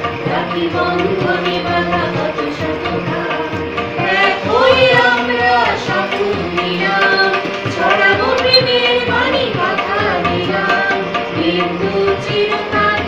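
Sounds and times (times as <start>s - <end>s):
harmonium: 0.0s - 13.0s
women singing together: 0.1s - 13.0s
tabla beat: 0.2s - 10.6s.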